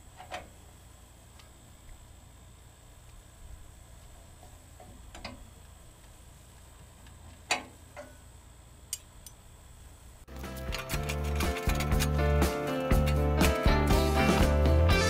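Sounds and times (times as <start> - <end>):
music: 10.3 - 15.0.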